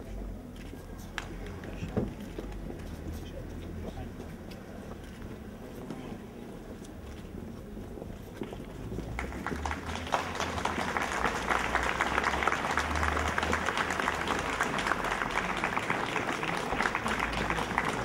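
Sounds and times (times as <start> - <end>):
crowd applauding: 9.0 - 18.0.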